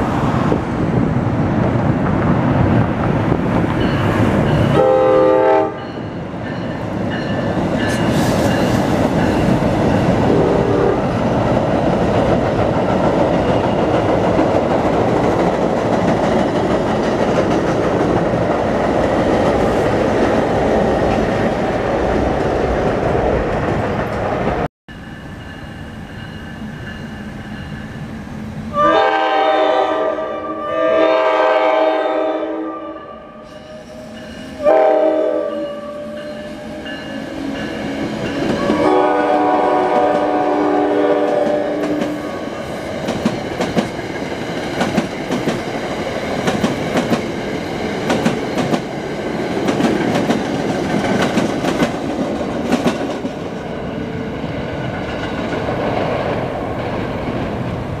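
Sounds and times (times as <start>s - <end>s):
train rumbling past: 0.0s - 58.0s
train horn blasts: 4.7s - 6.0s, 10.3s - 11.1s, 28.7s - 37.4s, 38.5s - 42.5s
train wheels clacking: 36.1s - 40.4s, 41.2s - 53.6s.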